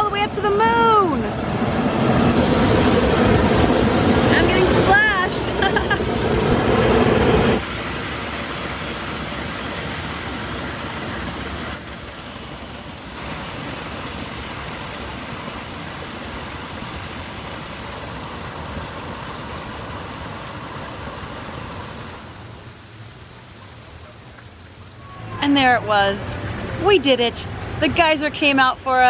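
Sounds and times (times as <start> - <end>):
water jet rushing hiss: 4.4 - 25.3.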